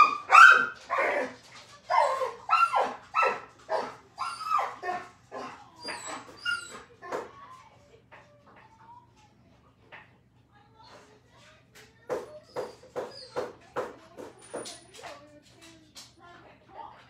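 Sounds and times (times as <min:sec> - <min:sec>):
dog barking: 0:00.0 - 0:07.3.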